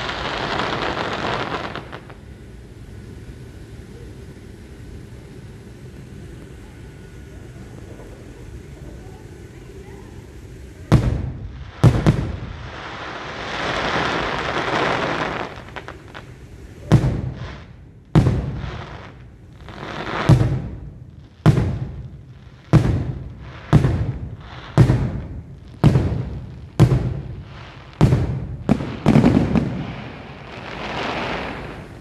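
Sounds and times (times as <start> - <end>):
firework booms: 0.0 - 2.2, 10.8 - 32.0
firework crackling: 0.0 - 32.0.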